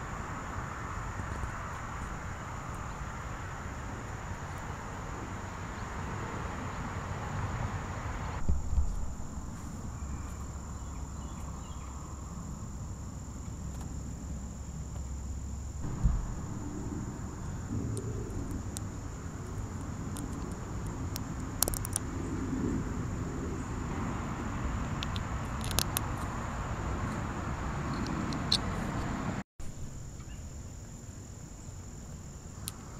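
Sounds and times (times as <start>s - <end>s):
background hiss: 0.0s - 32.9s
high-pitched insect trill: 8.9s - 32.9s
short knocks: 15.8s - 17.0s.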